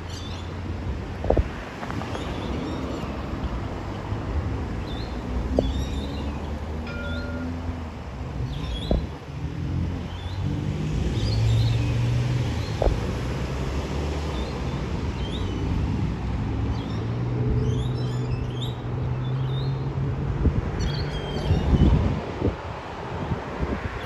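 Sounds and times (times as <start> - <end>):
small birds chirping: 4.8 - 6.7.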